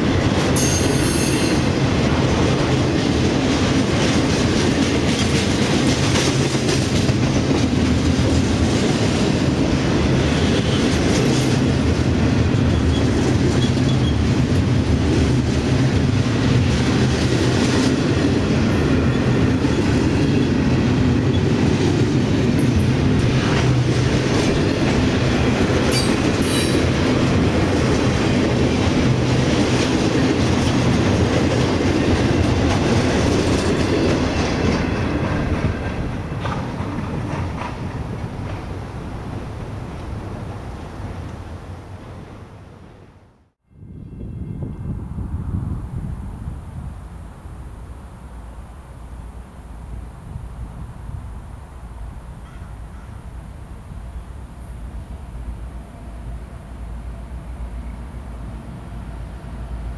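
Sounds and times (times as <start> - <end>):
wheels clacking over rail joints: 0.0 - 41.5
train wheels rumbling on rail: 0.0 - 59.9.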